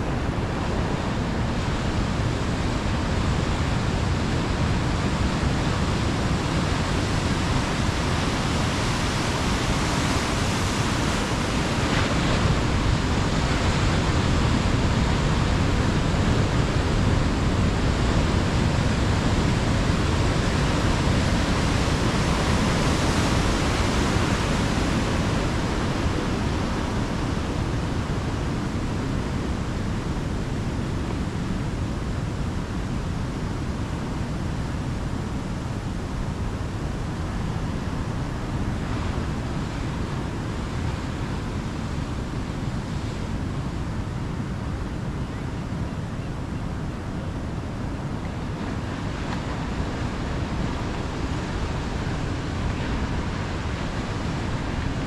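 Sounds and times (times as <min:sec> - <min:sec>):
steady rain: 0:00.0 - 0:42.6, 0:46.3 - 0:55.0
ocean surf breaking: 0:00.0 - 0:55.0.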